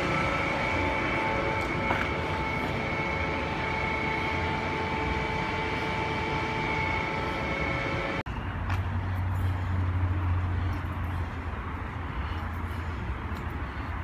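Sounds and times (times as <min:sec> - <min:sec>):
high whining tones: 0:00.0 - 0:08.2
low hum: 0:00.0 - 0:14.0
steady mechanical drone: 0:00.0 - 0:14.0.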